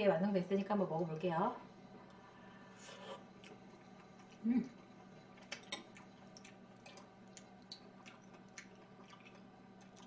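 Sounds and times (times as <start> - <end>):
low steady hum: 0.0 - 10.0
utensil clicks and chewing: 3.4 - 10.0.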